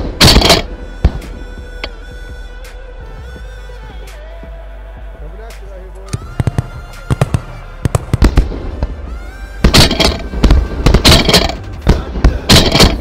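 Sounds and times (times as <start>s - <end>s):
shotguns firing: 0.0s - 1.4s, 6.2s - 9.0s, 9.6s - 13.0s
music: 0.0s - 13.0s.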